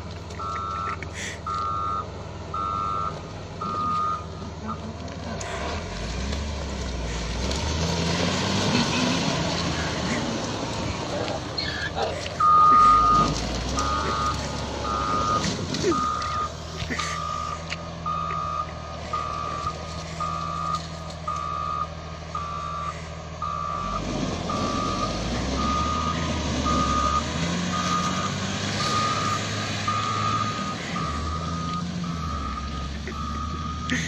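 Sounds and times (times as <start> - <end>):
engine running: 0.0 - 34.0
reversing alarm beeping: 0.4 - 4.8, 11.6 - 34.0.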